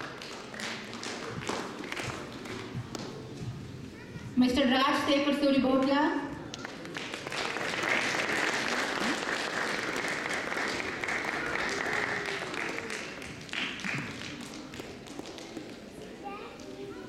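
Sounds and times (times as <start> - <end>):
audience applauding: 0.0 - 2.7, 6.5 - 15.7.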